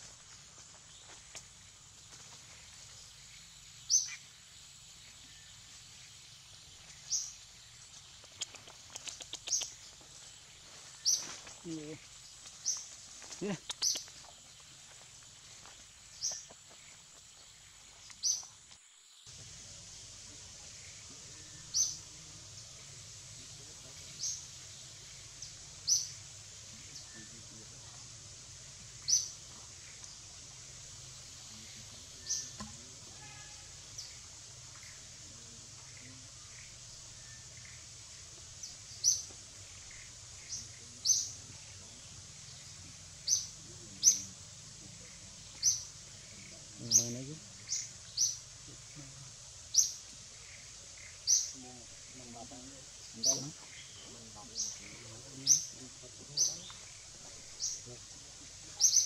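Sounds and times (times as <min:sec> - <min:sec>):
background hiss: 0:00.0 - 0:59.0
bird chirping: 0:00.7 - 0:59.0
clicks and small squeaks: 0:08.3 - 0:09.8.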